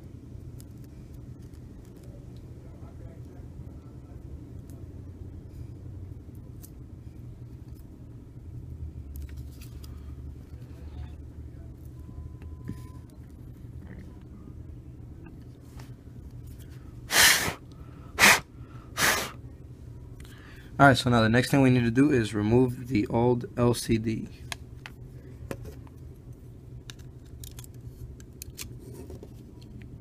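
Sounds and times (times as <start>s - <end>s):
steady low hum: 0.0s - 30.0s
smartphone parts clicking: 26.8s - 28.7s.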